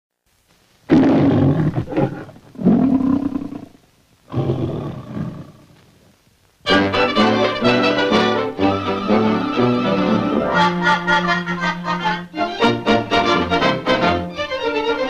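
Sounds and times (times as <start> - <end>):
lion roaring: 0.9 - 5.7
brass fanfare: 6.6 - 11.2, 12.5 - 14.4.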